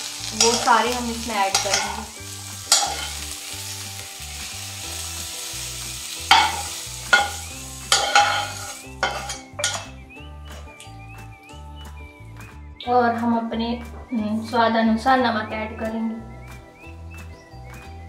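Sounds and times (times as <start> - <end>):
oil sizzling: 0.0 - 12.5
metal spatula scraping pan: 2.7 - 3.2, 6.3 - 9.9.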